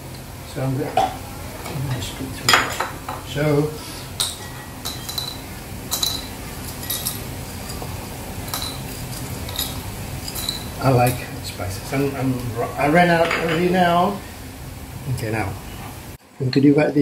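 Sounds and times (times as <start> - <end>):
spices clinking into china bowl: 4.2 - 11.3.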